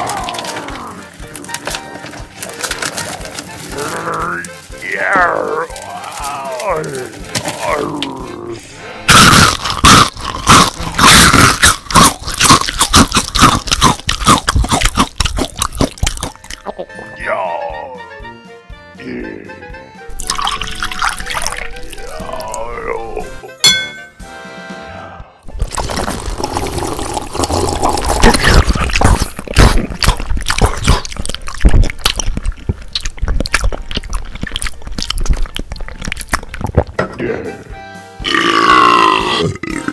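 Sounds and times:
crunching bites: 0.0 - 8.4, 9.1 - 16.6, 20.1 - 22.7, 25.5 - 37.0
liquid pouring and sloshing: 20.1 - 22.2, 25.5 - 37.0
wet gulps: 20.2 - 22.7, 25.5 - 37.0.

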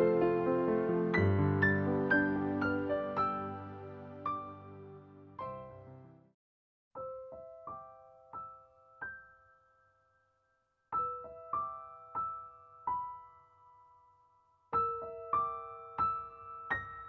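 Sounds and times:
soft slow piano melody: 0.0 - 6.4, 7.0 - 17.0.

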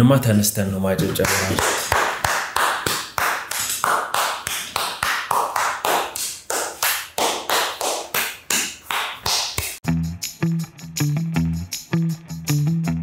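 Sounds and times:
rapid sharp taps: 1.0 - 9.8.

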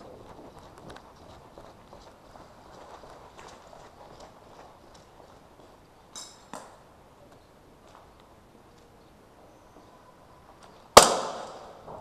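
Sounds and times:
airsoft gun bang: 11.0 - 12.0.

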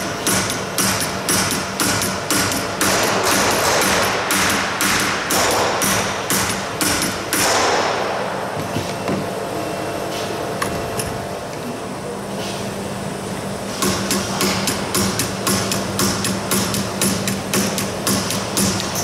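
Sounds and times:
hammer striking sheet metal: 0.0 - 8.6, 13.7 - 19.0.

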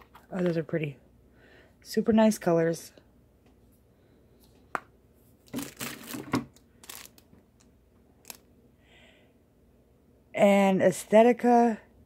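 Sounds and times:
plastic wrapping crinkling: 5.4 - 7.4.

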